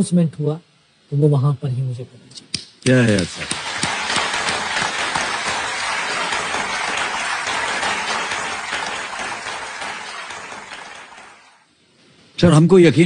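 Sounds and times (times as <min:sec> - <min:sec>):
audience applauding: 0:03.0 - 0:11.6.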